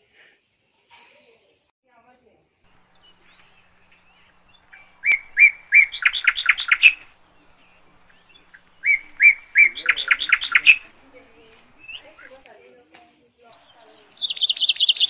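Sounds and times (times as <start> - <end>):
bird singing: 2.7 - 12.6, 13.4 - 15.0.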